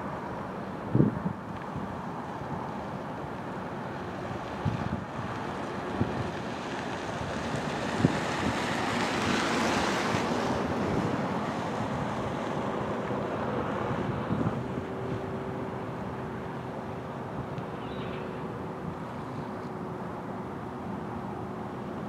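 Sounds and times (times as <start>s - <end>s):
wind: 0.0s - 22.0s
waves washing: 2.0s - 14.0s.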